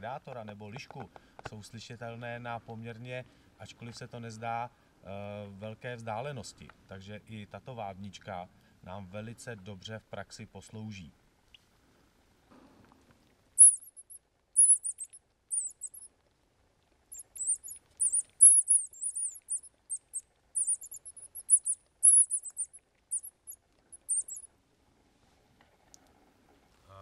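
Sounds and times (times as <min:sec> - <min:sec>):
high thin squeaks of predator call: 0:13.6 - 0:16.1, 0:17.1 - 0:24.5.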